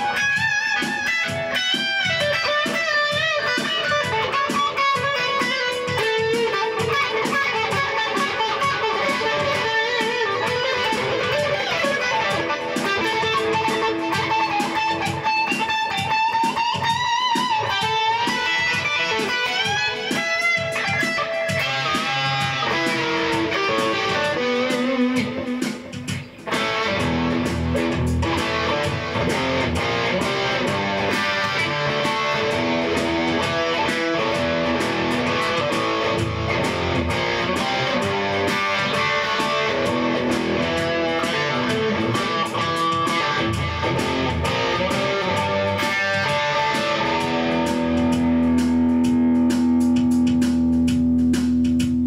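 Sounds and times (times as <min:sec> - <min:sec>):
rock music with electric guitar: 0:00.0 - 0:52.0.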